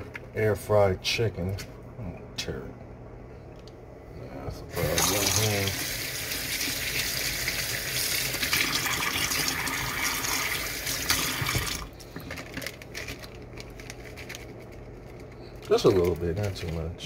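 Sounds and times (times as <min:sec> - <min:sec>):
faucet running into sink: 0:04.8 - 0:11.9.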